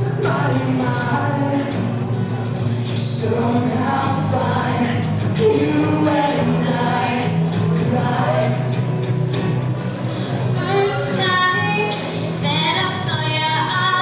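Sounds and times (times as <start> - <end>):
man and woman singing duet: 0.0 - 1.9, 2.8 - 8.8
acoustic guitar: 0.0 - 14.0.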